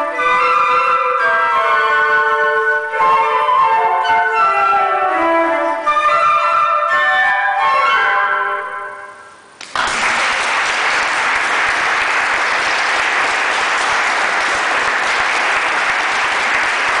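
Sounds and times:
audience applause: 9.6s - 17.0s.

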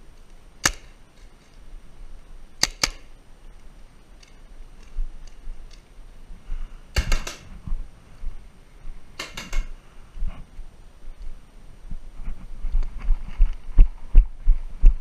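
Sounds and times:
paintball marker firing: 0.6s - 1.0s, 2.6s - 3.1s, 7.0s - 7.5s, 9.2s - 9.7s.

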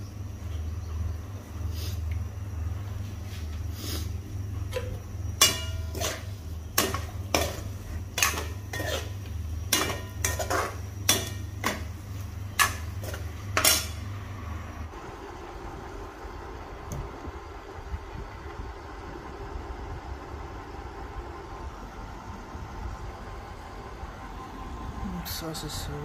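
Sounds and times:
steady low hum: 0.0s - 26.0s
spatula knocking and scraping pan: 4.7s - 14.0s.

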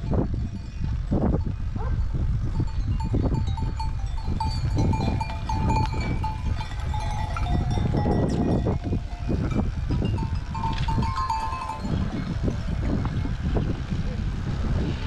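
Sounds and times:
steady low rumble: 0.0s - 15.0s
livestock bells clanking: 2.4s - 13.6s.

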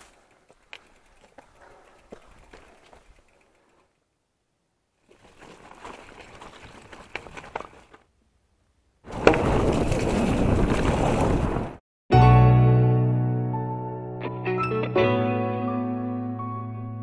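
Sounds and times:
bike tyres and wind rushing: 0.0s - 8.2s, 8.9s - 11.8s.

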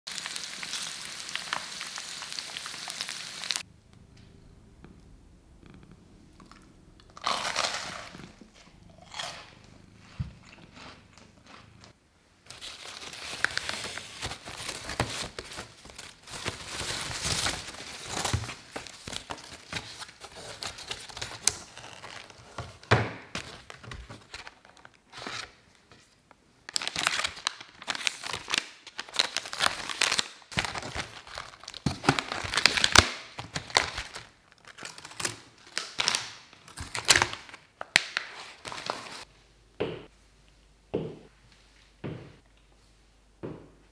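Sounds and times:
plastic packaging crinkling: 12.5s - 25.5s, 26.7s - 39.3s.

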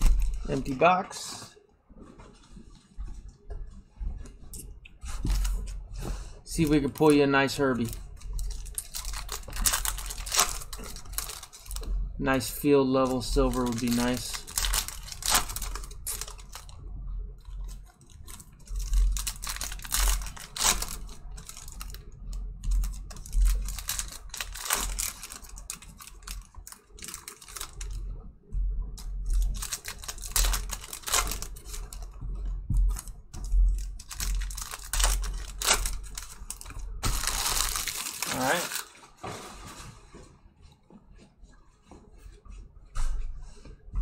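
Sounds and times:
foil wrappers tearing and crinkling: 6.4s - 16.8s, 17.5s - 28.0s, 29.0s - 32.1s, 32.9s - 39.2s.

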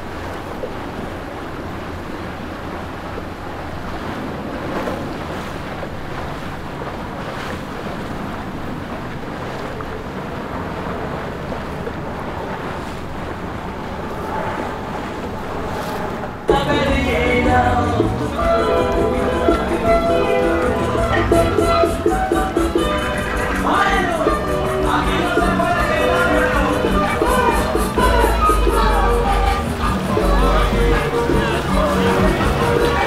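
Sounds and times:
motorboat passing: 0.0s - 33.0s
waves washing: 0.0s - 33.0s
wind buffeting microphone: 0.0s - 33.0s.

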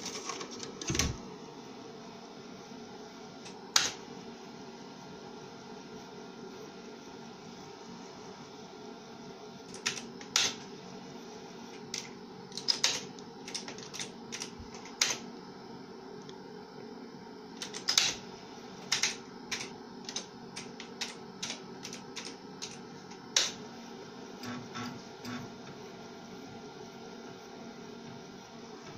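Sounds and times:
steady low hum: 0.0s - 28.9s
computer keyboard typing: 9.7s - 10.6s, 11.8s - 15.2s, 17.6s - 18.2s, 18.9s - 23.6s.

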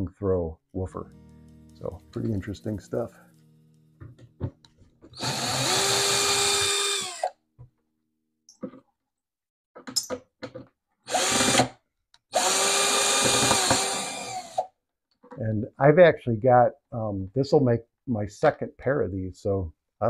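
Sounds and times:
cordless drill motor whine: 5.2s - 7.4s, 11.1s - 11.7s, 12.4s - 14.7s.

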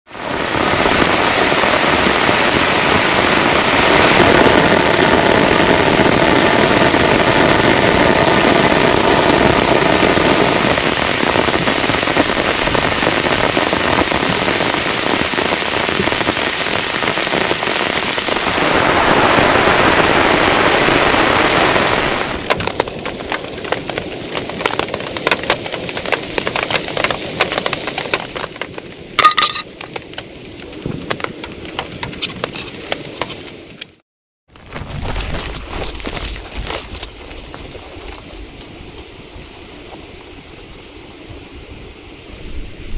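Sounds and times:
raindrops pattering on a surface: 0.1s - 32.2s, 34.5s - 39.0s
heavy rain pouring: 0.1s - 33.3s, 34.5s - 42.6s.

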